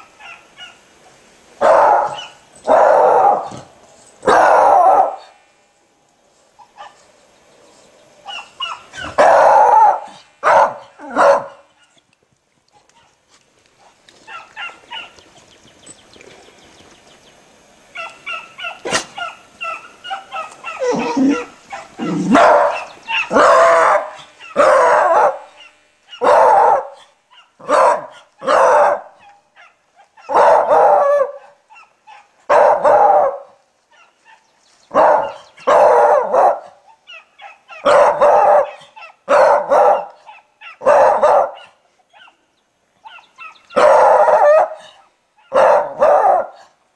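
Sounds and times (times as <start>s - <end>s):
dog barking: 0.2s - 0.8s, 1.6s - 5.3s, 8.2s - 12.0s, 14.3s - 15.2s, 18.0s - 42.4s, 43.0s - 46.7s.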